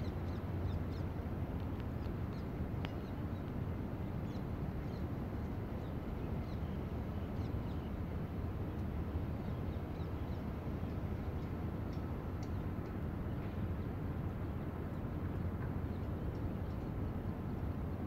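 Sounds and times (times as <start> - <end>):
outdoor background noise: 0.0 - 18.0.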